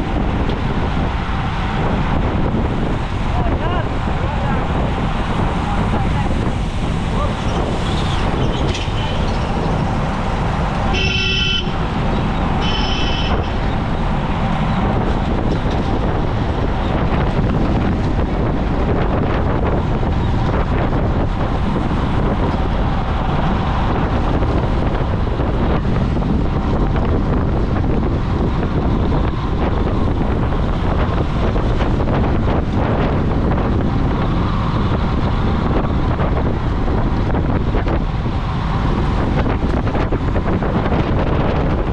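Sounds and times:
road traffic: 0.0 - 41.9
wind rushing on microphone: 0.0 - 41.9
vehicle horn toots: 10.9 - 11.9, 12.6 - 13.6.

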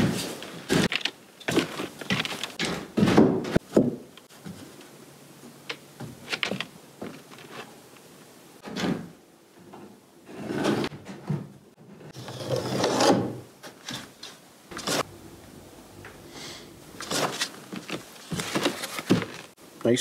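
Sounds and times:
wood scraping on wood: 12.1 - 13.3.

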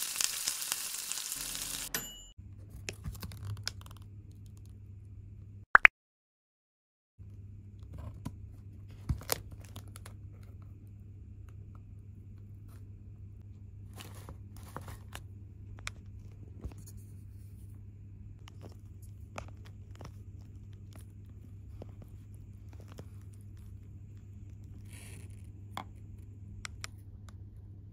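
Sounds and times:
plastic packaging crinkling and tearing: 0.0 - 1.5.

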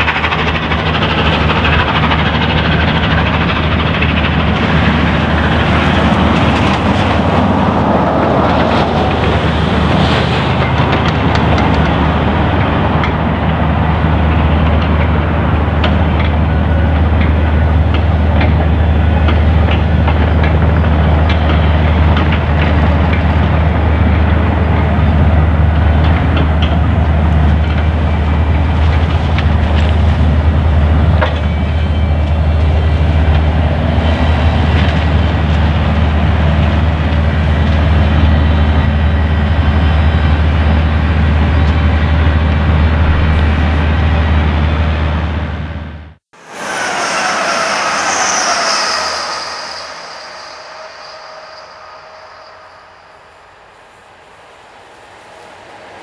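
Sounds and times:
rail clicks: 0.0 - 24.9
steam locomotive rumble: 0.0 - 56.0.

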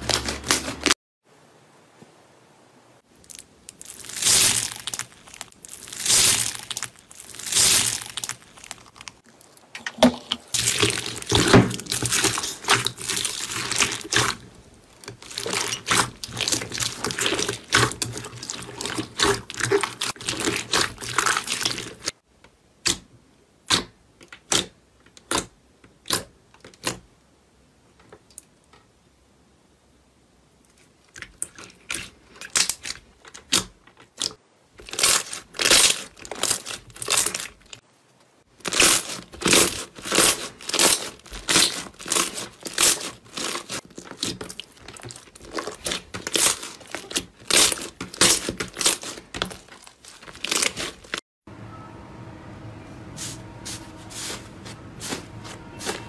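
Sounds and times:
slime squelching and crackling: 0.0 - 1.0, 3.1 - 22.2, 30.7 - 37.8, 38.5 - 51.2
hand swishing through foam beads: 3.9 - 8.5, 53.2 - 56.0.

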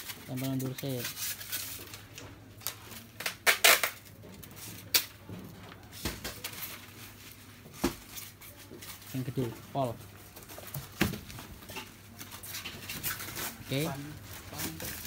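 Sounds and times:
plastic sheeting crinkling: 12.0 - 15.0.

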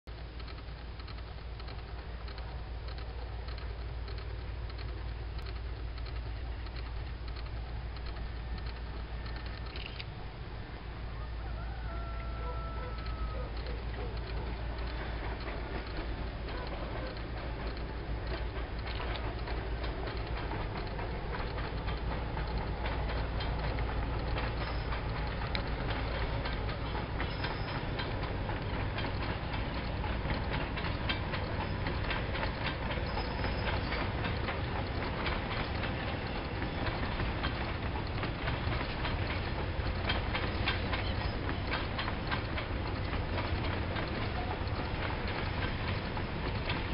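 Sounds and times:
low train rumble: 0.1 - 46.9
wheels clattering over rail joints: 11.8 - 46.9.

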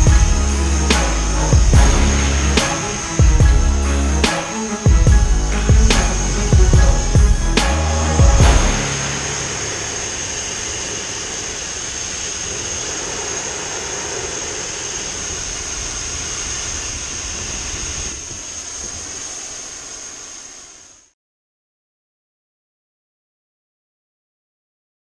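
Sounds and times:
thin high whistle: 0.0 - 16.8
cutting torch hissing roar: 0.0 - 21.1.

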